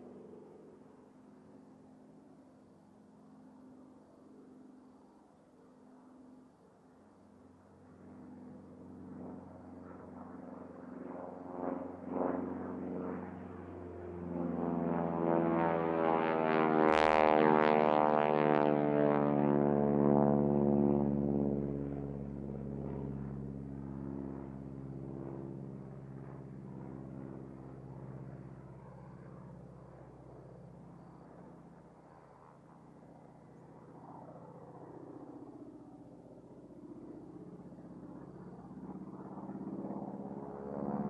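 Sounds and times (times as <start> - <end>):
propeller plane engine droning: 0.0 - 41.0.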